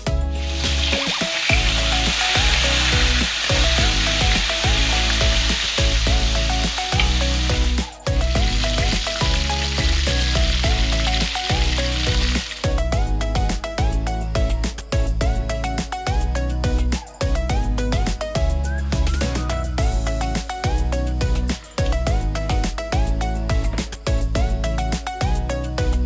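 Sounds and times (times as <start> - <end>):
upbeat background music: 0.0 - 26.0
fish sizzling in hot oil: 0.3 - 13.2.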